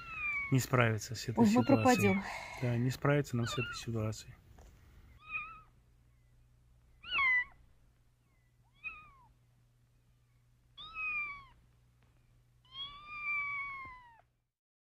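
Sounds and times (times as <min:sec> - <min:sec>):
kittens mewing: 0:01.4 - 0:04.0, 0:05.2 - 0:05.8, 0:07.0 - 0:07.6, 0:08.7 - 0:09.4, 0:10.8 - 0:11.6, 0:12.7 - 0:14.3.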